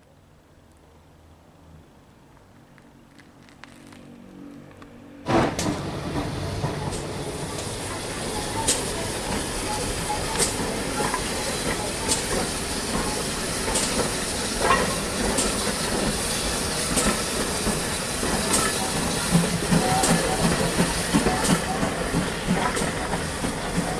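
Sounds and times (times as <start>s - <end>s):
steam locomotive hissing: 5.3s - 23.9s.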